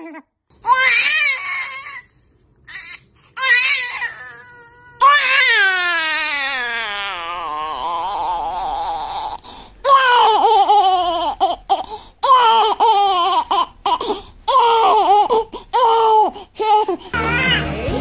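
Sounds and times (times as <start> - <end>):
newborn baby crying: 0.6 - 2.1, 2.7 - 17.6.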